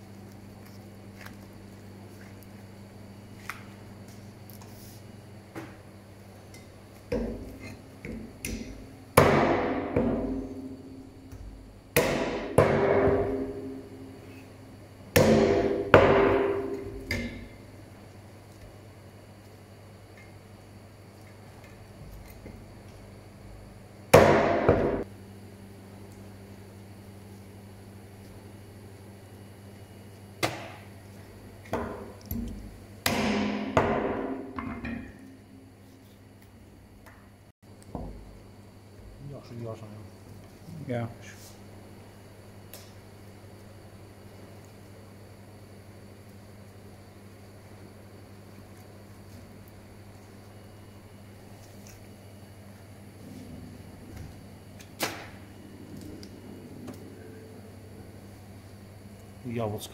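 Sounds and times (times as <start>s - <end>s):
heavy knocks on metal: 12.0s - 13.6s.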